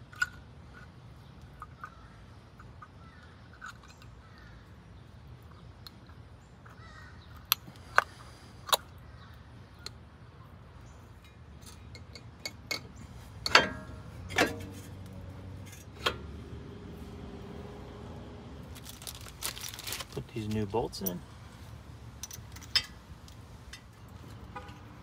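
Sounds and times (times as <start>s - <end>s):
ringing metal clanks: 13.5s - 14.8s.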